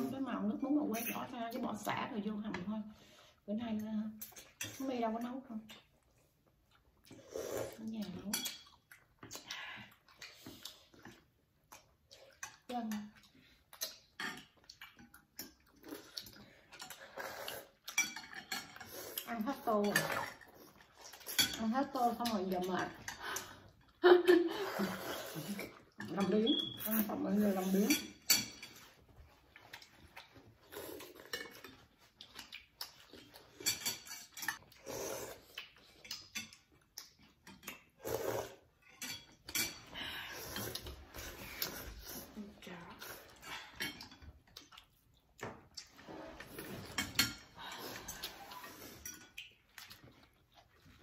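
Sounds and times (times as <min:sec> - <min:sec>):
slurping noodle soup: 0:07.0 - 0:07.9, 0:15.6 - 0:18.0, 0:18.6 - 0:21.4, 0:24.5 - 0:28.0, 0:30.2 - 0:36.3, 0:37.2 - 0:38.8, 0:39.7 - 0:44.0, 0:45.8 - 0:51.0
slurping noodles: 0:07.1 - 0:07.9, 0:15.8 - 0:17.8, 0:24.5 - 0:26.0, 0:34.7 - 0:36.0, 0:37.9 - 0:38.8, 0:40.2 - 0:43.8, 0:47.7 - 0:49.1
utensils clinking against bowls: 0:17.8 - 0:23.7, 0:25.5 - 0:29.0, 0:31.2 - 0:34.7, 0:38.8 - 0:41.7, 0:46.6 - 0:49.4.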